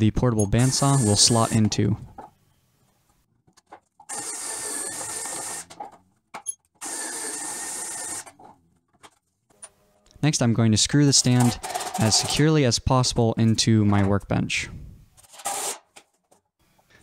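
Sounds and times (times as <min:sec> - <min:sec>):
cordless drill boring wood: 0:00.6 - 0:01.6, 0:04.1 - 0:05.7, 0:06.8 - 0:08.2.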